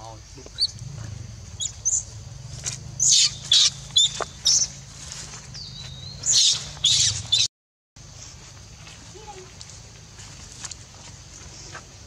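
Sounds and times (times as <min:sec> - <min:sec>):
baby monkey screaming: 0:03.0 - 0:04.7.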